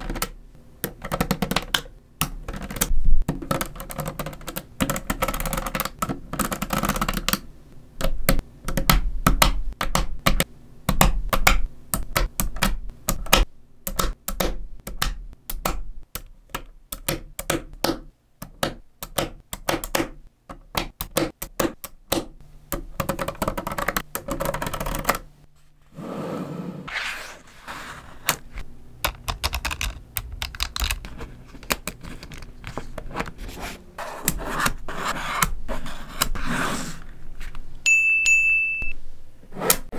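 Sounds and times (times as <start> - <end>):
magnet balls clicking together: 29.0 - 32.5.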